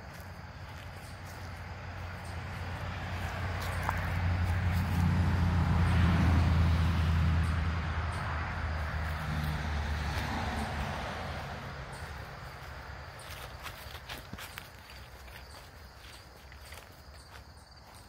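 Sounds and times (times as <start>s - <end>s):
vehicle driving past: 1.1s - 13.7s.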